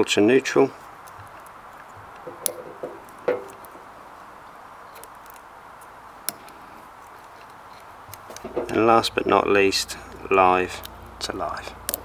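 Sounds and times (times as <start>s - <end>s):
wire handling: 0.8s - 9.4s, 10.0s - 12.0s.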